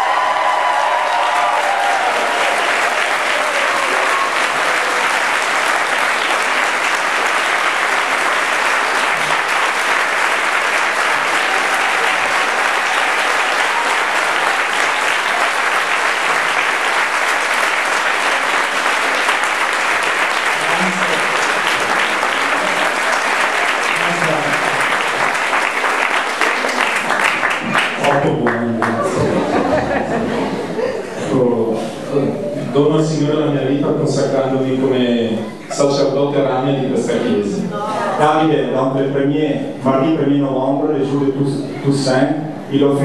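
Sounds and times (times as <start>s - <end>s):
audience applauding: 0.0s - 30.9s.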